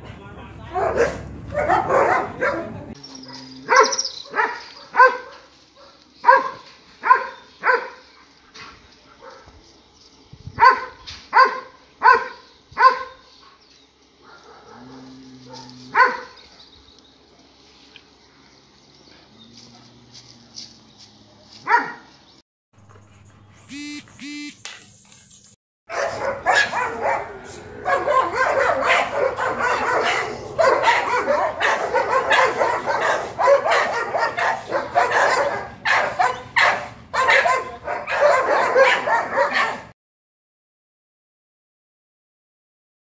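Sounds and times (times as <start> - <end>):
dog barking: 0.7 - 8.0, 9.1 - 9.5, 10.6 - 13.2, 14.2 - 16.4, 21.6 - 22.1, 25.9 - 39.9
several dogs barking and yelping: 0.7 - 9.5, 10.6 - 16.6, 25.9 - 40.0
dog yipping: 0.8 - 5.4, 23.7 - 24.5, 25.9 - 27.2, 27.9 - 39.9.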